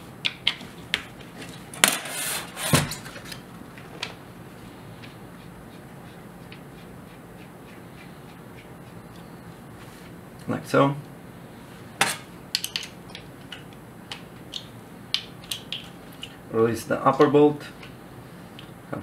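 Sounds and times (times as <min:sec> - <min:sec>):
short metal scrape: 0:01.9 - 0:02.8.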